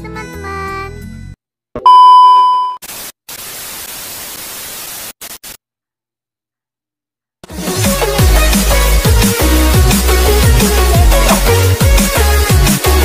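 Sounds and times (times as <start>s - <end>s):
test-tone beep: 1.8s - 2.8s
tv static hiss stuttering: 2.8s - 5.6s.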